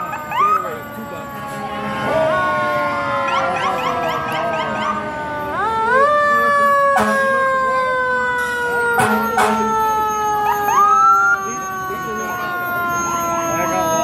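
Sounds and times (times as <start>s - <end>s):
fire engine siren: 0.0s - 14.0s.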